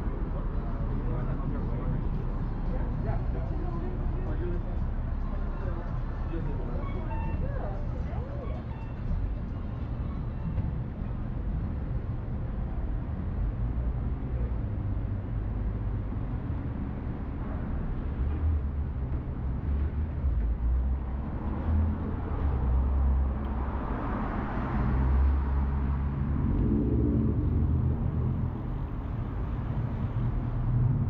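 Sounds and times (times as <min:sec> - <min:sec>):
low rumble of cars: 0:00.0 - 0:31.0
vehicle passing close: 0:21.3 - 0:31.0.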